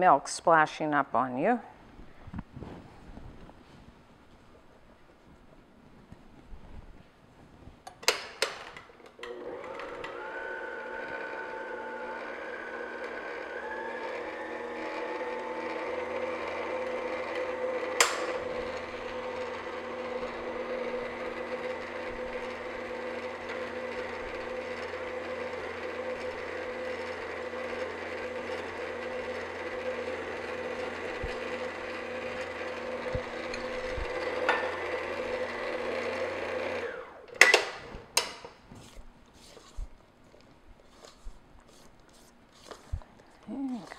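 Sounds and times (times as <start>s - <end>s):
stand mixer motor running: 9.3s - 37.4s.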